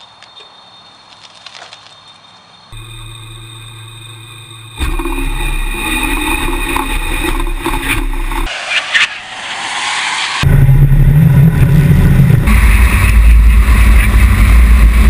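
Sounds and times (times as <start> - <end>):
electric motor whining: 2.8 - 8.5
wind noise rushing: 7.6 - 15.0.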